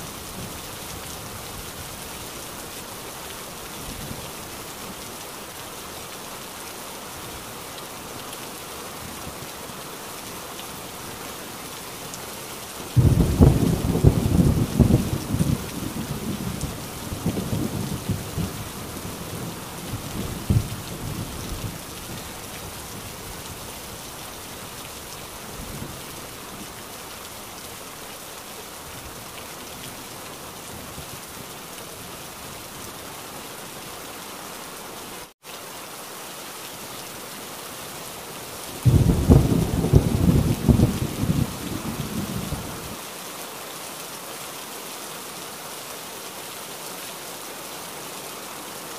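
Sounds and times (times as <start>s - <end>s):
heavy rain: 0.0s - 48.9s
thunder rumbling: 13.0s - 21.8s, 38.8s - 42.9s.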